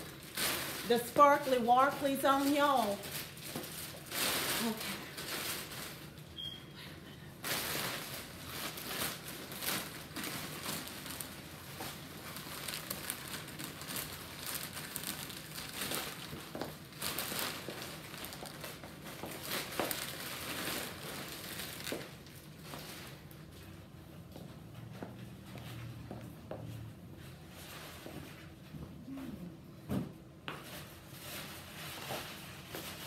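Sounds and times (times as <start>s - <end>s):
crackly rustle: 0.0s - 6.3s, 7.4s - 23.8s.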